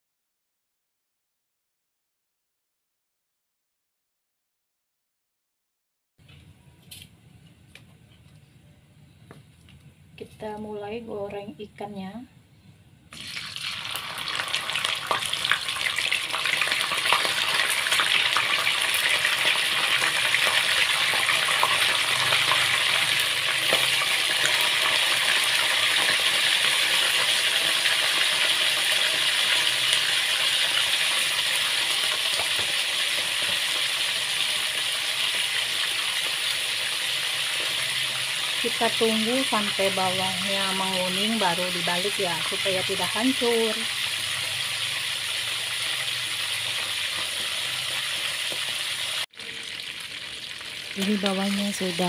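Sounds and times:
fish sizzling in hot oil: 13.1 - 52.0.

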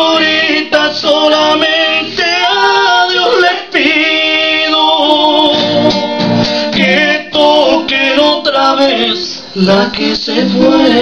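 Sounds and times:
acoustic guitar: 0.0 - 11.0
person singing: 6.7 - 11.0.

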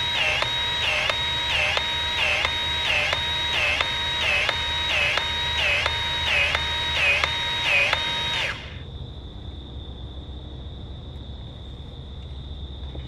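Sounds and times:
electronic warbling alarm tone: 0.0 - 8.8
high insect drone: 0.0 - 13.0
low hum: 0.0 - 13.0.

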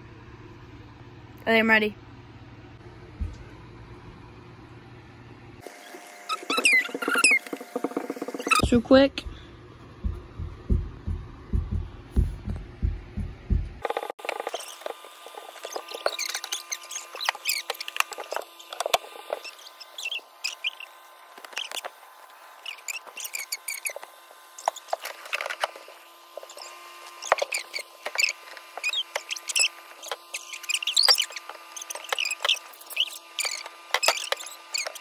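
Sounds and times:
electric fan humming: 0.0 - 35.0
short high-pitched squeaks: 5.7 - 8.8, 14.4 - 22.0, 22.6 - 35.0.

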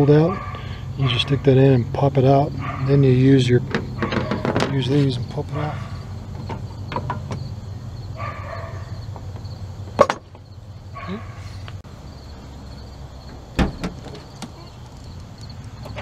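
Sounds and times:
wiper arm clicks and scraping: 3.7 - 5.1.

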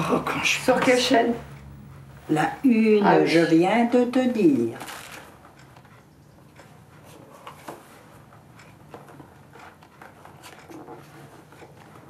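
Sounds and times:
low steady room hum: 0.0 - 12.0
cardboard box and papers rustling: 4.8 - 5.3.

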